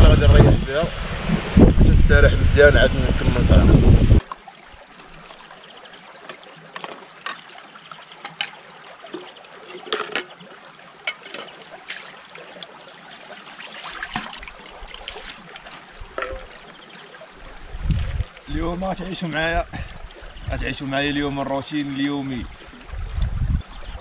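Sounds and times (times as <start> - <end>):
water trickling: 4.2 - 24.0
cookware clicking and clinking: 9.7 - 10.3.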